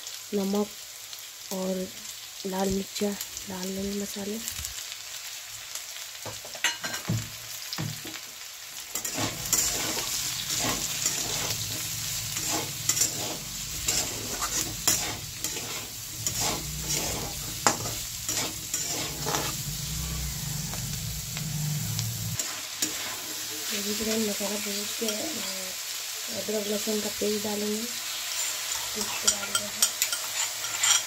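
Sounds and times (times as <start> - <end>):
hot oil sizzling: 0.0 - 31.0
spatula scraping vegetables: 8.9 - 25.4, 28.3 - 31.0
low hum: 13.4 - 22.4.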